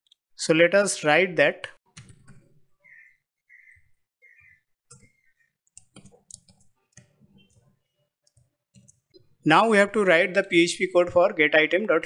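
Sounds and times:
faint keyboard typing: 4.9s - 9.2s.

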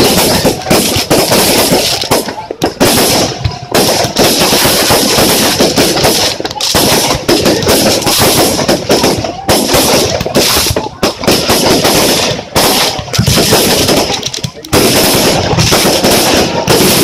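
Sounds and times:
fireworks bangs and crackling: 0.0s - 17.0s.

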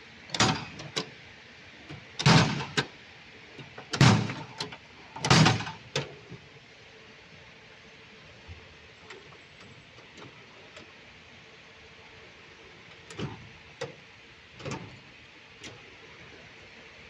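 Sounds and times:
metal drawer clicks: 0.3s - 1.1s
drawers clunking shut: 0.4s - 1.0s, 2.2s - 2.8s, 3.9s - 4.6s, 5.2s - 5.8s.

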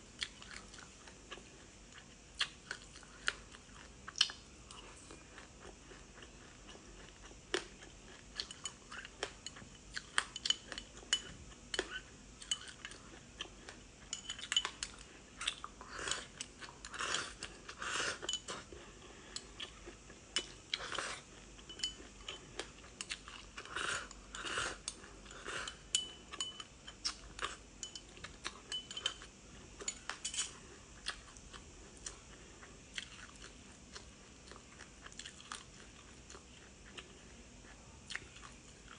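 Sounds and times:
crunching and chewing food: 0.0s - 38.9s
spoon scraping glass bowl: 29.9s - 30.5s.

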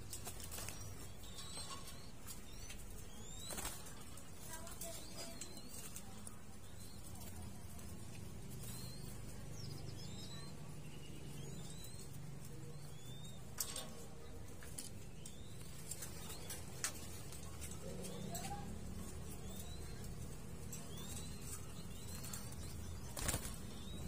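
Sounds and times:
chicks squeaking: 0.0s - 24.0s
wing flutters: 15.8s - 24.0s.

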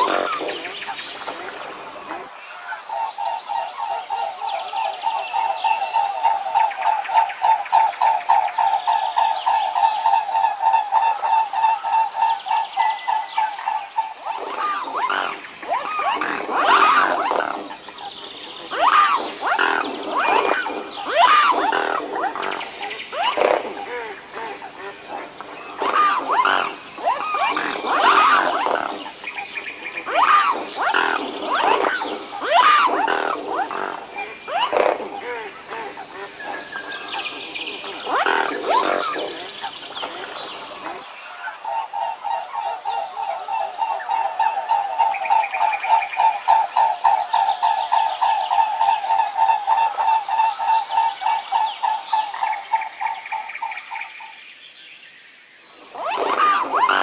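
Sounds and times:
swans calling in pulsed notes: 9.1s - 53.5s, 55.9s - 57.0s.

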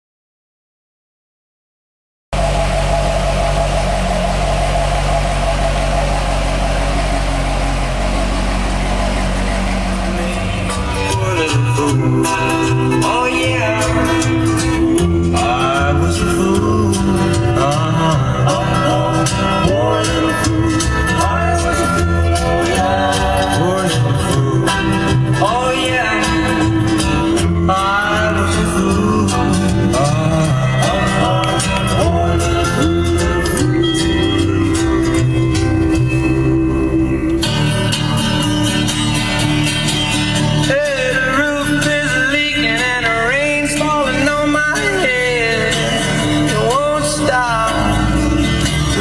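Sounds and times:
car engine idling: 2.3s - 19.4s
song with singing and beat: 8.2s - 38.2s, 40.6s - 49.0s.

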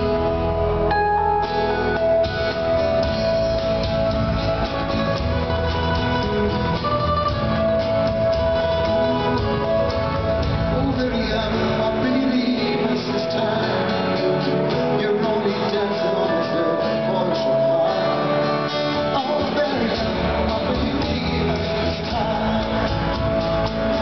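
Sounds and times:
keyboard: 0.0s - 24.0s
strummed acoustic guitars: 0.0s - 24.0s
man singing through pa: 10.6s - 18.3s, 19.0s - 24.0s.

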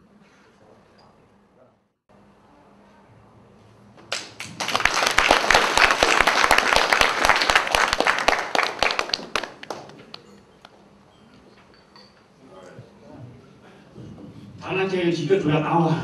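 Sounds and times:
audience applauding: 4.1s - 10.3s.

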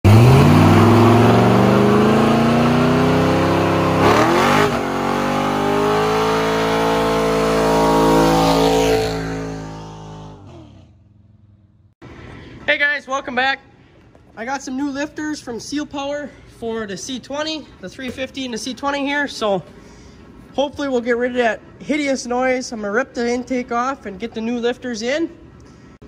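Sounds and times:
engine revving hard: 0.0s - 11.0s.

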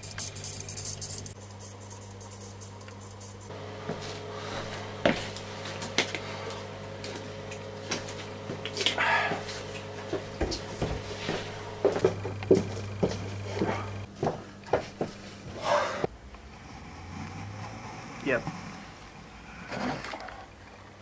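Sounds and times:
low hum: 0.0s - 14.6s.

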